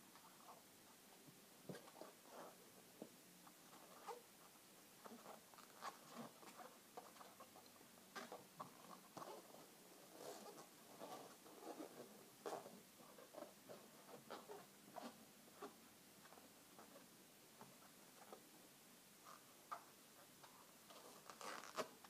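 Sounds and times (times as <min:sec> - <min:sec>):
rubber balloon squeaking: 0:21.0 - 0:22.0.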